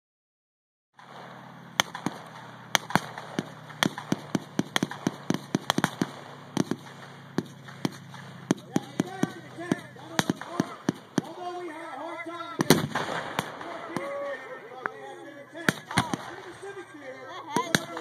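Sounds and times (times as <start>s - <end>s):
blank gunfire pops: 1.0s - 11.4s, 12.6s - 14.1s, 15.7s - 16.4s, 17.5s - 18.0s
steady low drone: 1.0s - 18.0s.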